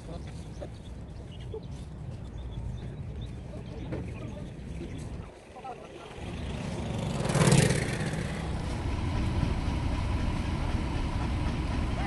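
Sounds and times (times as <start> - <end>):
boat engine rumbling: 5.8 - 12.0
loud rushing noise: 6.5 - 12.0.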